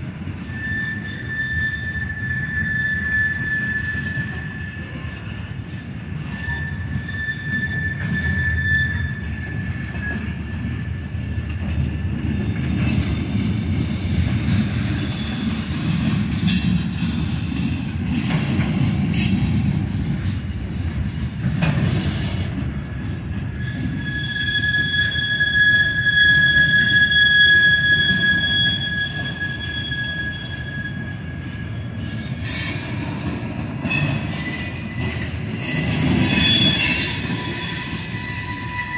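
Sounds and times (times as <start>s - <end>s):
train wheels rumbling on rail: 0.0s - 38.9s
high wheel squeal: 0.2s - 11.6s, 12.8s - 38.9s.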